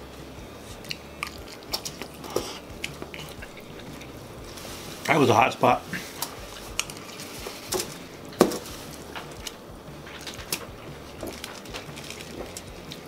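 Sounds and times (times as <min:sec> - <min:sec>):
chewing: 0:00.6 - 0:04.8, 0:05.9 - 0:08.0, 0:08.9 - 0:13.0
fork clicking against foil: 0:06.2 - 0:08.0, 0:09.2 - 0:13.0.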